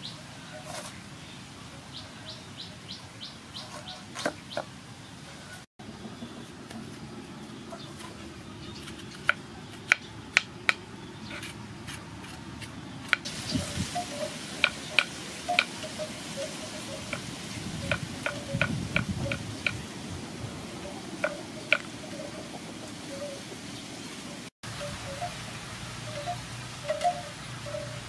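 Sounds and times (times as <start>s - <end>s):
knife scraping gourd: 7.7s - 13.3s.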